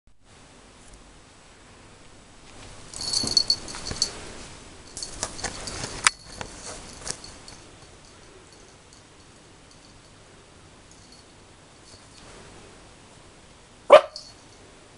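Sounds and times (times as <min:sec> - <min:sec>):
puppy yapping and barking: 0:13.9 - 0:14.3.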